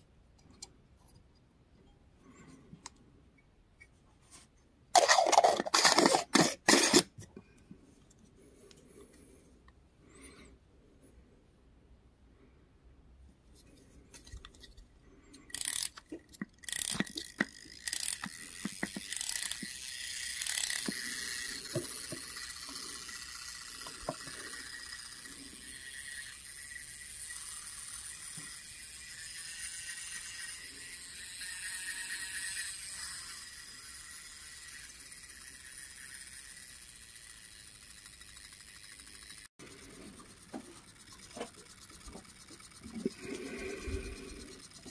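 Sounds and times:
clockwork whir: 5.0s - 7.2s, 15.4s - 44.9s
ratchet clicks: 15.4s - 44.9s.

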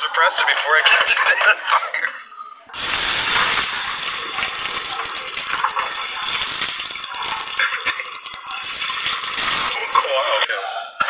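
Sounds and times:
fire extinguisher hissing: 2.7s - 10.5s.

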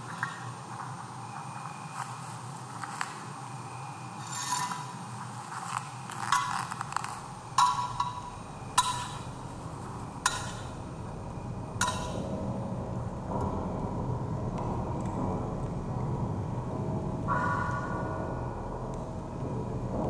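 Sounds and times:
steady low rumble: 5.1s - 20.0s
sharp ringing knocks: 10.2s - 10.8s, 11.7s - 12.4s.

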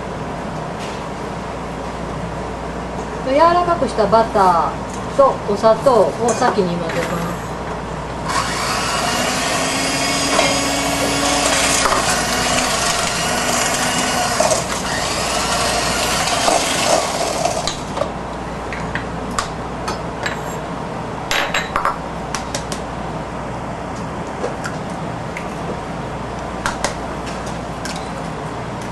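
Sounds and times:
electric hand mixer whirring: 8.2s - 17.7s.

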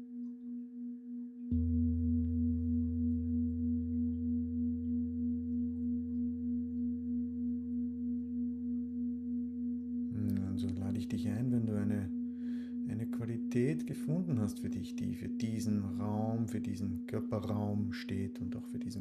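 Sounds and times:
singing bowl ringing: 0.0s - 14.9s
hum: 0.0s - 19.0s.

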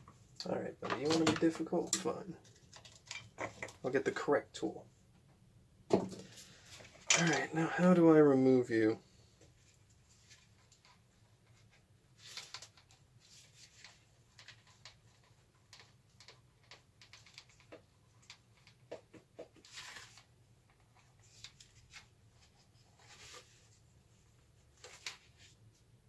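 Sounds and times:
clicks and taps of handled plastic: 13.8s - 19.6s.

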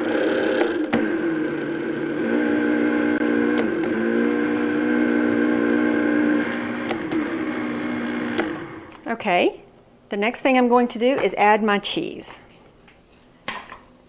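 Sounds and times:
blender motor whine: 0.0s - 9.0s.

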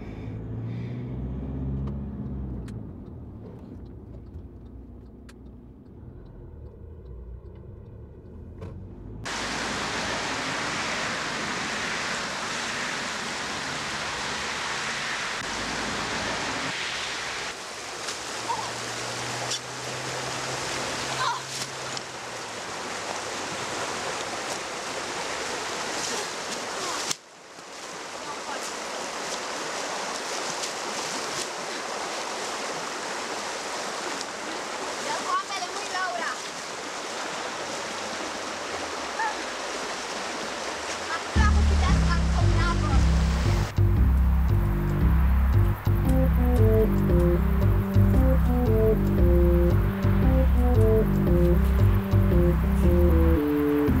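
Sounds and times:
road and engine rumble in car: 0.0s - 25.3s, 41.3s - 54.0s
rocky river rushing: 9.3s - 43.8s.

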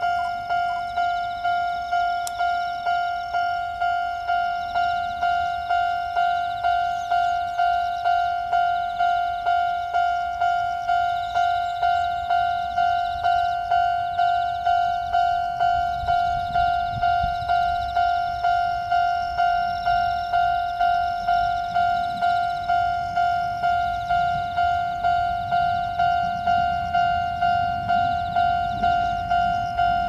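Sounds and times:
level crossing warning bell: 0.0s - 30.0s.

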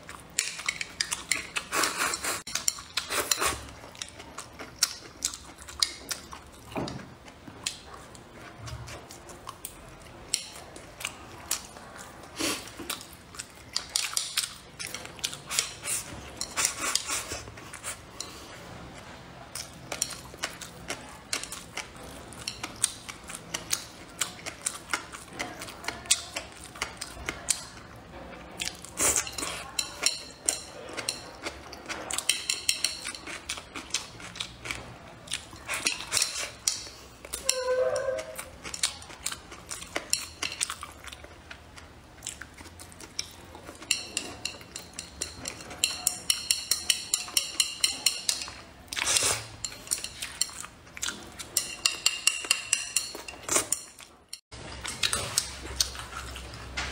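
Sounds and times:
chewing and lip-smacking: 0.0s - 37.6s, 38.2s - 56.9s
chopsticks clicking on ceramic bowl: 43.1s - 48.6s, 51.6s - 53.9s.

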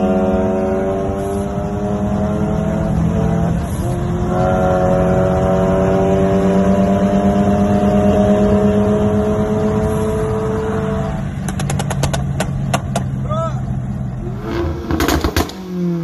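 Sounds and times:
car engine accelerating hard: 0.0s - 12.4s, 13.9s - 16.0s
exhaust pops and crackles: 11.4s - 13.2s, 14.8s - 15.6s.

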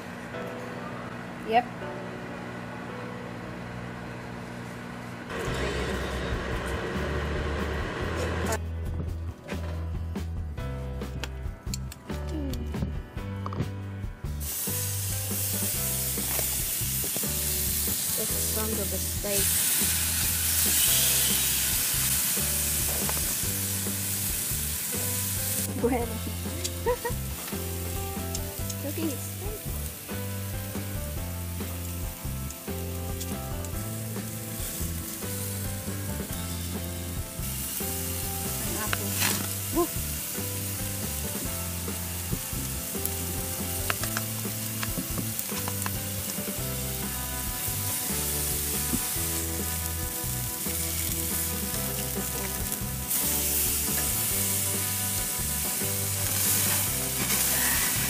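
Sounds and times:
meat sizzling on grill: 14.3s - 58.0s.

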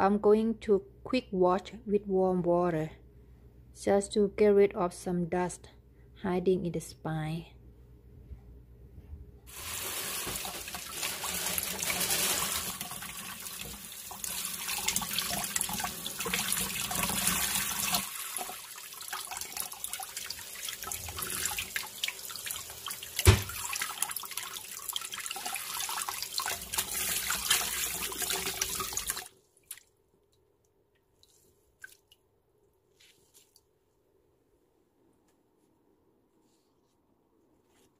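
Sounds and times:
tap water splashing into sink: 9.6s - 18.5s, 22.9s - 29.3s
sharp knock: 23.2s - 23.5s.

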